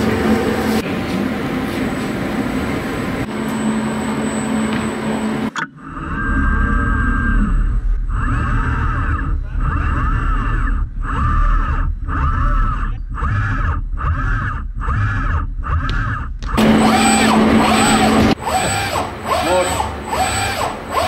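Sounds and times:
dense machine sound with tone: 0:00.0 - 0:21.0
servo motors whining: 0:04.5 - 0:21.0.

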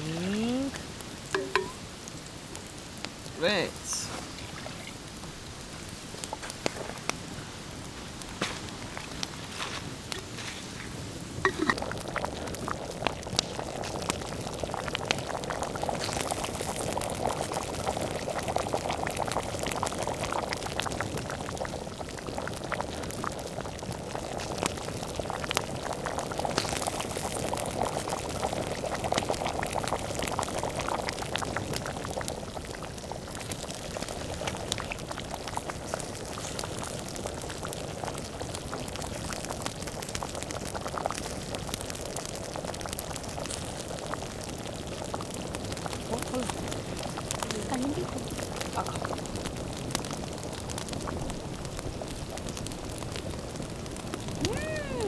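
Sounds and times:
campfire crackling: 0:00.0 - 0:55.0
water boiling in pot: 0:00.0 - 0:55.0.

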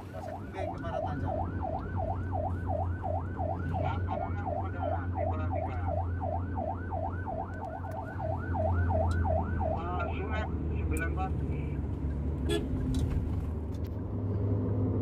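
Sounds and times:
engine and tyres hum: 0:00.0 - 0:15.0
police siren yelping: 0:00.2 - 0:10.4.

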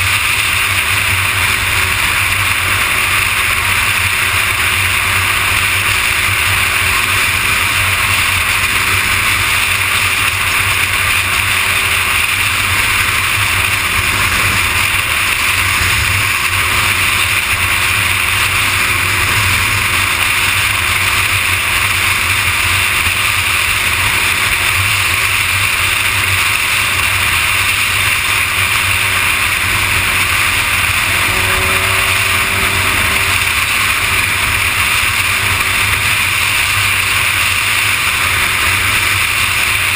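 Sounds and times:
faint motorcycle engine hum: 0:00.0 - 0:39.9
motorcycle road noise: 0:00.0 - 0:39.9
wind rush on microphone: 0:00.0 - 0:39.9
brief rising tone: 0:30.8 - 0:36.1.

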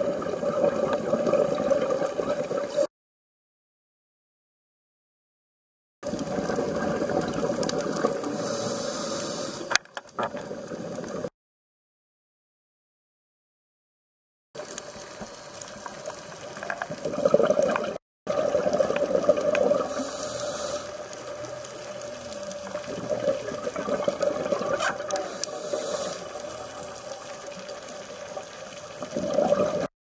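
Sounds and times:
underwater bubbles rushing: 0:00.0 - 0:02.8, 0:06.0 - 0:08.6, 0:14.6 - 0:29.9.

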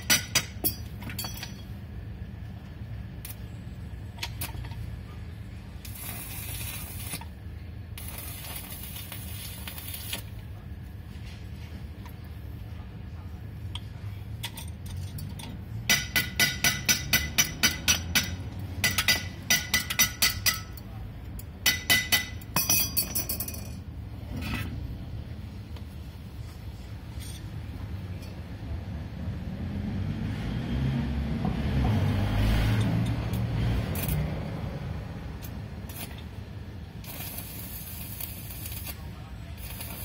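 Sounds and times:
hammer striking metal: 0:00.0 - 0:01.7, 0:15.8 - 0:20.8, 0:21.6 - 0:23.6.

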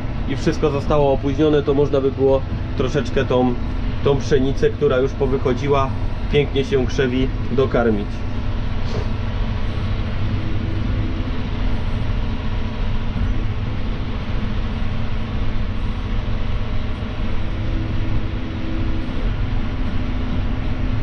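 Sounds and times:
faint steady tone: 0:00.0 - 0:21.0
tractor diesel engine drone: 0:00.0 - 0:21.0.

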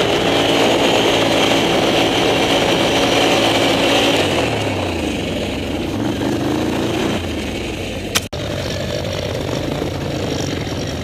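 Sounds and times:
atv engine running: 0:00.0 - 0:11.0
sharp click: 0:08.1 - 0:08.3.

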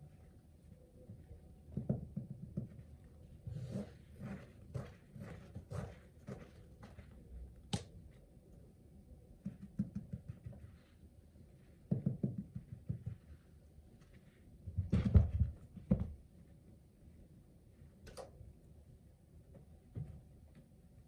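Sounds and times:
cat paws thumping and scuffling: 0:14.6 - 0:16.2.

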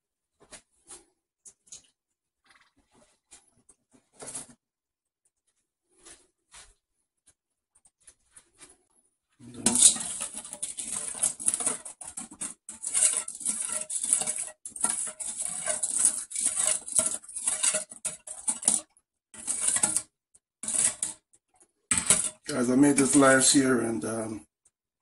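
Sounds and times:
metal spoon scraping a steel bowl: 0:09.5 - 0:21.2, 0:21.9 - 0:23.7.

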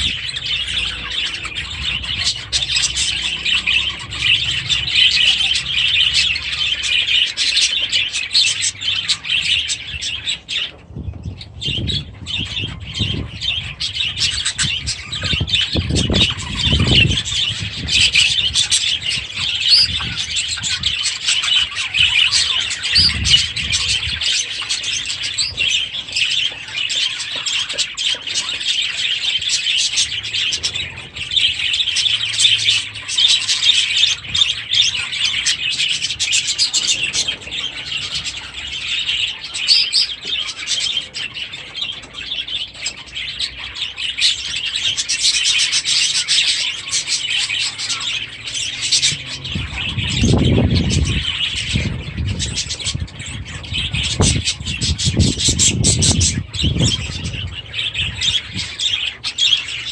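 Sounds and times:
budgerigars chattering and warbling: 0:00.0 - 0:59.9.

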